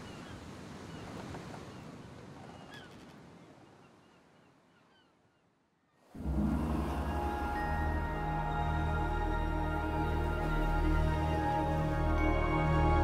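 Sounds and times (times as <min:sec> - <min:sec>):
wind: 0:00.0 - 0:13.0
sea waves rushing: 0:06.1 - 0:13.0.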